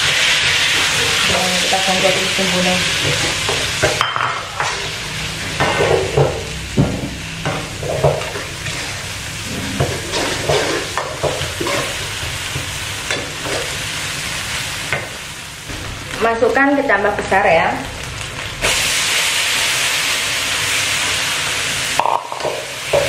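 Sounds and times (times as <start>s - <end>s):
spice paste sizzling in oil: 0.0s - 5.6s, 8.2s - 23.0s
metal spatula scraping a wok: 7.7s - 12.0s.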